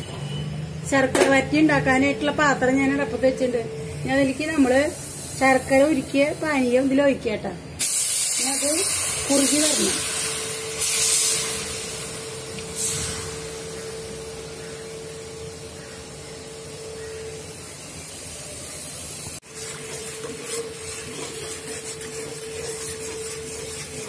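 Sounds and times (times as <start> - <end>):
syrup hissing in a pan: 7.8 - 15.2, 18.0 - 24.0.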